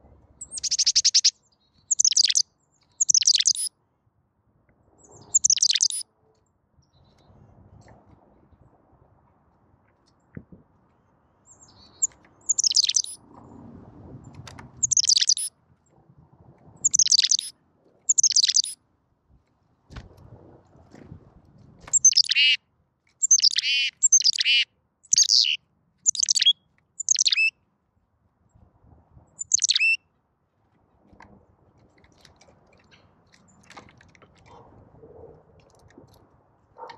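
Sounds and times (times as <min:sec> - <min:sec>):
chickadee calling: 0:00.4 - 0:01.3, 0:01.9 - 0:02.4, 0:03.0 - 0:03.7, 0:05.3 - 0:06.0, 0:11.9 - 0:13.2, 0:14.8 - 0:15.5, 0:16.8 - 0:17.5, 0:18.1 - 0:18.8, 0:21.9 - 0:22.6, 0:23.2 - 0:27.5, 0:29.4 - 0:30.0.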